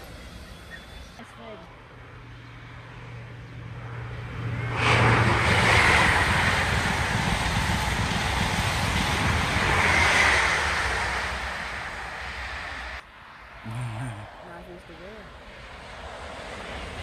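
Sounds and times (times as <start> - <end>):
train passing at speed: 0.0 - 13.6, 14.2 - 17.0
rush of wheels and air: 3.6 - 13.0, 15.4 - 17.0.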